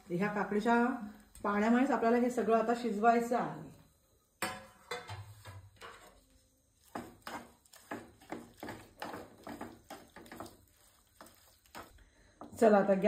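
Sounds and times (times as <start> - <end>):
wooden spatula scraping pan: 5.0 - 12.0.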